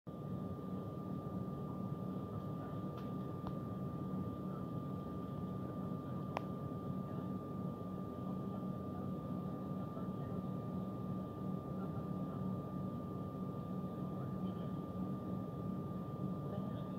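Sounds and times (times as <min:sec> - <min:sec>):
airliner cabin engine hum: 0:00.1 - 0:16.9
thin steady whine: 0:00.1 - 0:16.9
faint click: 0:06.3 - 0:06.5.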